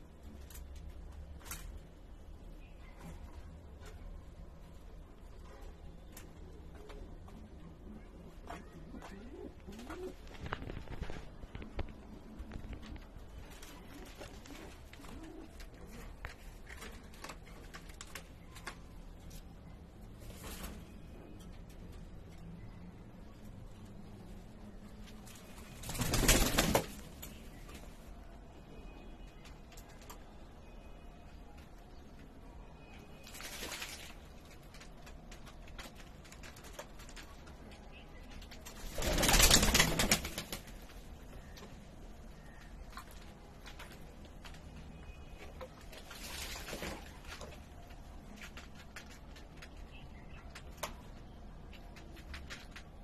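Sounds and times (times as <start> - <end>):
small clicks and rustles: 0.1 - 2.0, 8.4 - 19.7
pigeon wings fluttering: 8.5 - 18.8, 25.3 - 27.3, 33.2 - 37.5, 38.6 - 40.9, 45.9 - 47.6
pigeons splashing in water: 33.2 - 34.2, 45.9 - 47.4.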